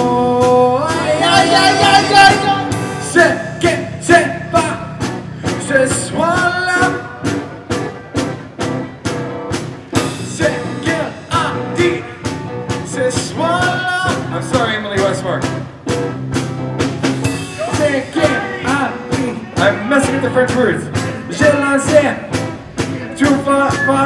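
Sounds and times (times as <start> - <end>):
man singing: 0.0 - 7.2, 10.0 - 14.8, 17.6 - 22.3, 22.9 - 24.0
drum kit beat: 0.0 - 24.0
electric and acoustic guitars: 0.0 - 24.0.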